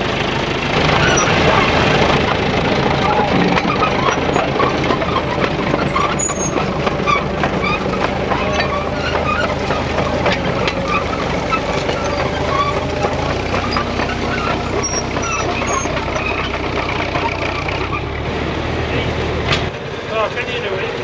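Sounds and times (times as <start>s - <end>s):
tractor engine running under load: 0.0s - 21.0s.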